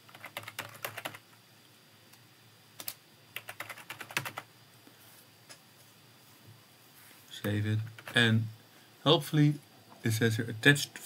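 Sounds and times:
typing on computer keyboard: 0:00.0 - 0:01.2, 0:02.8 - 0:04.5, 0:07.8 - 0:08.2.

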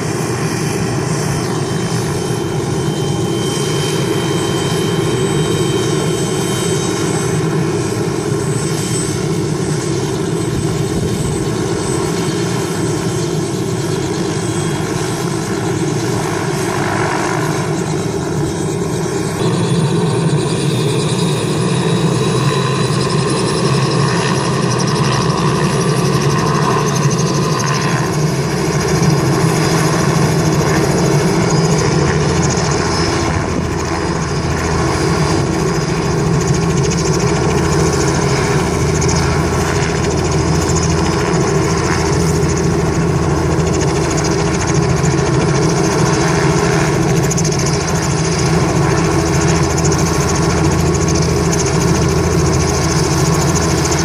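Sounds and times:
helicopter engine and rotor running: 0:00.0 - 0:54.0.

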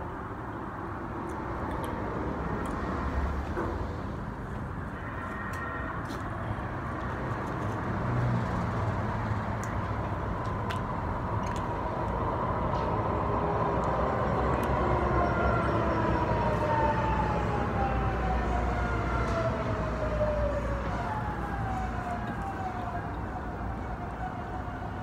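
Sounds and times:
low traffic rumble: 0:00.0 - 0:25.0
emergency vehicle siren: 0:04.8 - 0:09.1, 0:11.8 - 0:25.0.

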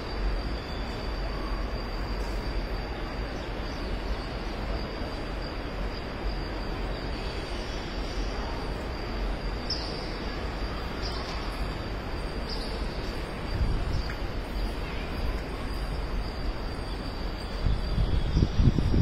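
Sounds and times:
insects droning: 0:00.0 - 0:19.0
short insect chirps: 0:00.0 - 0:19.0
wind rumble on microphone: 0:11.6 - 0:19.0.

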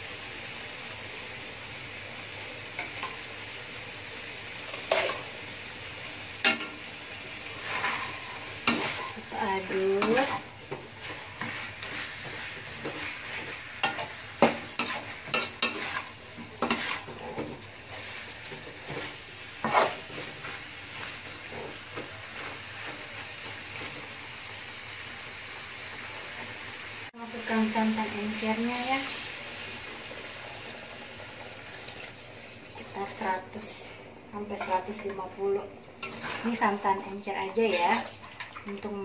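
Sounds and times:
low steady sizzle: 0:00.0 - 0:39.0
metal spatula scraping wok: 0:07.4 - 0:23.9, 0:36.0 - 0:38.1.

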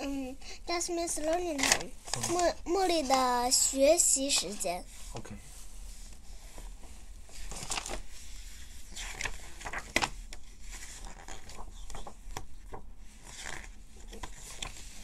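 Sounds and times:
book pages turning: 0:01.2 - 0:03.3, 0:07.3 - 0:15.0.

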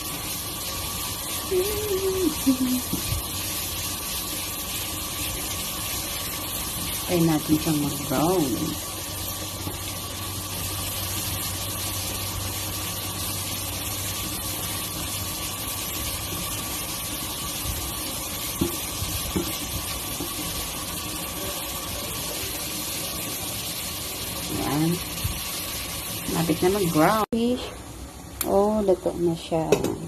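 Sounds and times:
garlic sizzling in hot oil: 0:00.0 - 0:30.0
wooden spatula knocking pan: 0:18.6 - 0:20.4.

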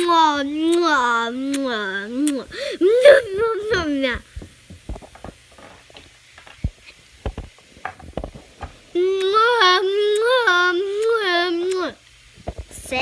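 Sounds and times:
child humming: 0:00.0 - 0:04.3, 0:08.9 - 0:12.0.

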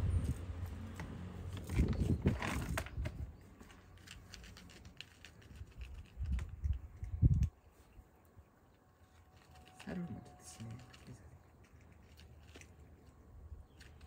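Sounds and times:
cat crunching dry kibble: 0:01.5 - 0:07.6, 0:09.0 - 0:14.0.

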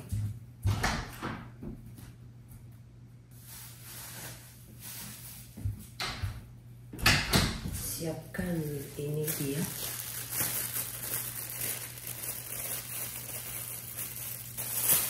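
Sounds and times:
low steady hum: 0:00.0 - 0:15.0
door opening and shutting: 0:00.6 - 0:01.5, 0:07.0 - 0:07.8.

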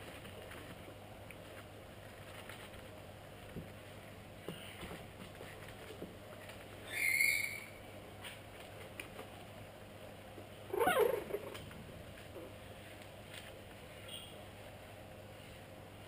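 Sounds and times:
puppies yelping: 0:10.7 - 0:11.5.

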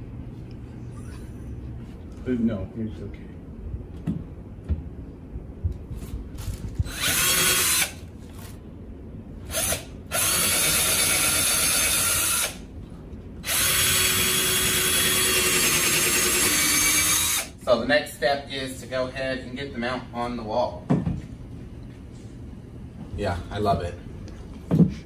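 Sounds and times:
cordless drill boring into wall: 0:06.8 - 0:08.0, 0:09.5 - 0:12.6, 0:13.4 - 0:17.6.

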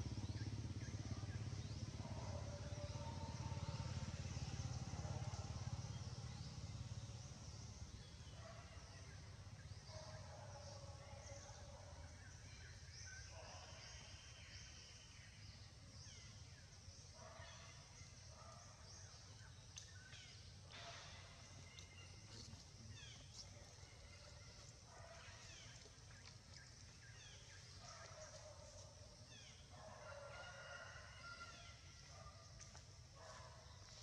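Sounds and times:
low engine rumble: 0:00.0 - 0:12.2.

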